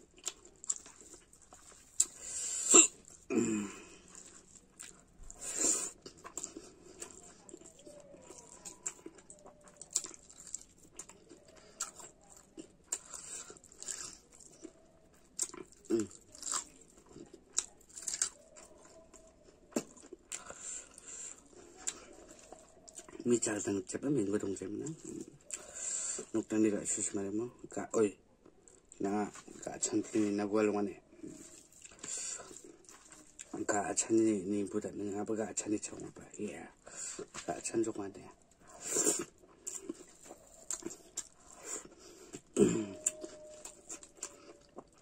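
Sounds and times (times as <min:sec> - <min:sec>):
chewing and lip smacking: 0:00.0 - 0:27.1, 0:28.3 - 0:33.8, 0:35.9 - 0:37.6, 0:38.2 - 0:45.0
fingers squishing through food: 0:04.0 - 0:23.4, 0:38.3 - 0:45.0.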